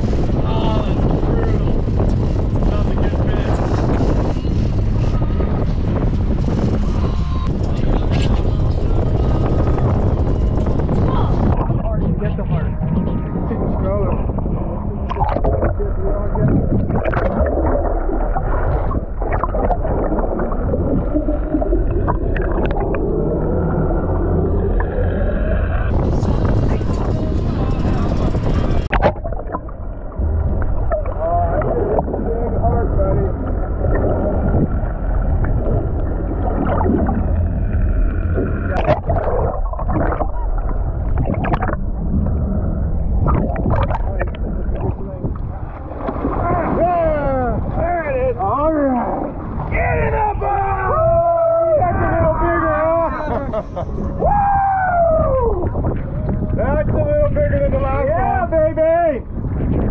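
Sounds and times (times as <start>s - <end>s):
muffled underwater hum: 0.0s - 47.8s
water gurgling: 0.0s - 54.4s.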